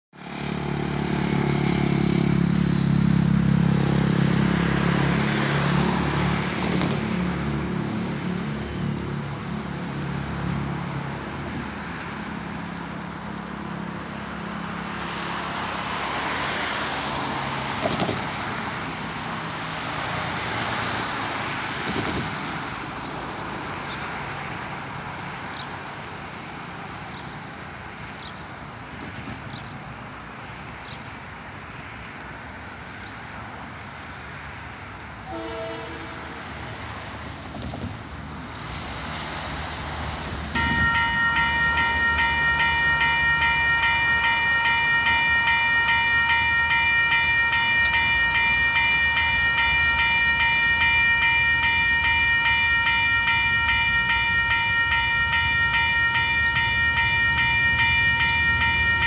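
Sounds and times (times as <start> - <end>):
traffic noise: 0.1 - 59.0
vehicle engine hum: 0.2 - 29.0.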